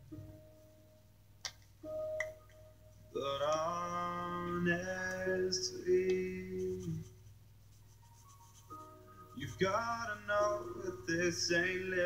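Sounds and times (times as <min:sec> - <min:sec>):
person singing long notes: 0:03.1 - 0:07.1, 0:09.4 - 0:12.0
pop song: 0:03.1 - 0:07.1, 0:09.3 - 0:12.0.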